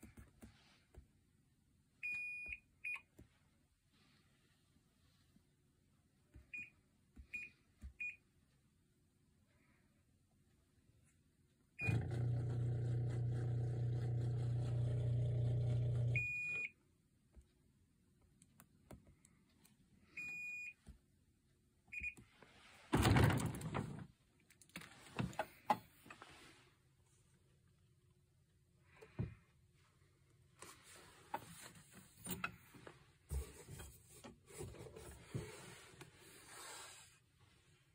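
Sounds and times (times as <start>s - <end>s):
dishwasher beeps: 11.8s - 12.2s, 16.0s - 16.7s
dishwasher motor hum: 11.8s - 16.3s
dishwasher door opening rush: 23.0s - 24.0s.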